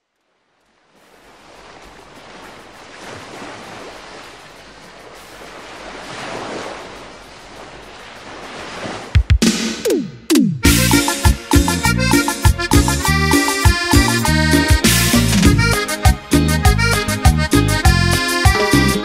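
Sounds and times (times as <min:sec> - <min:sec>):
waves breaking on beach: 0:00.2 - 0:10.1.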